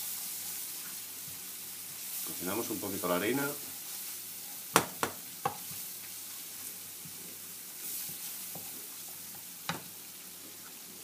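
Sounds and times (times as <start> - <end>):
onion sizzling in oil: 0.0 - 11.0
spatula knocking against pan: 4.7 - 5.6.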